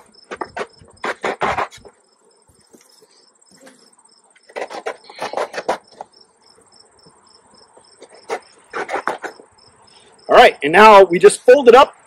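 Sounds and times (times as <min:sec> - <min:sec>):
crickets chirping: 0:00.0 - 0:12.0
faint high insect trill: 0:01.8 - 0:10.6.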